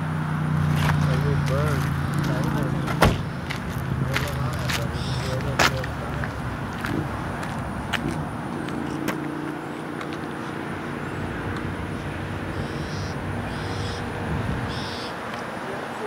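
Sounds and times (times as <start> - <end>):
short high-pitched calls: 12.5 - 14.0.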